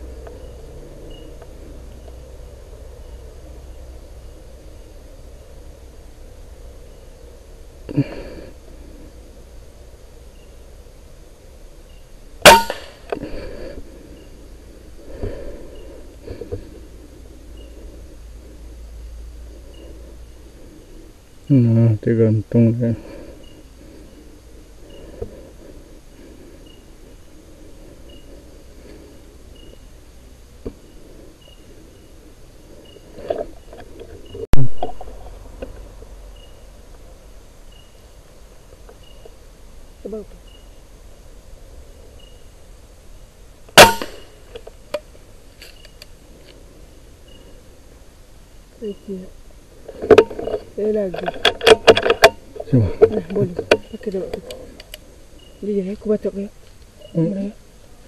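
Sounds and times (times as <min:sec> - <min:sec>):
high insect-like chirp: 0:00.0 - 0:58.0
rifle shot: 0:12.4 - 0:13.1, 0:43.8 - 0:44.3
air rifle shot: 0:43.8 - 0:44.3.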